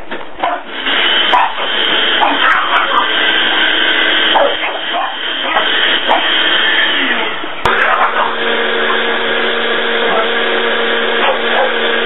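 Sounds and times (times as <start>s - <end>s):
blender motor whirring: 0.8s - 12.0s.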